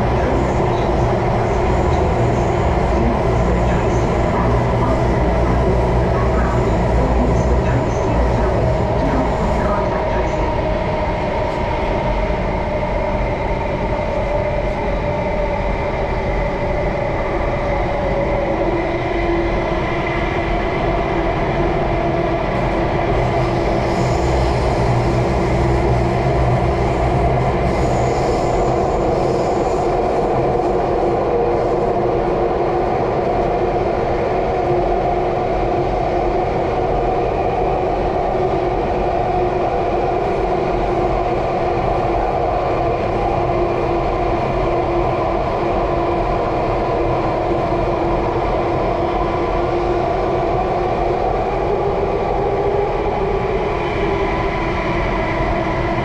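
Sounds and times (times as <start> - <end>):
train wheels rumbling: 0.0 - 13.9.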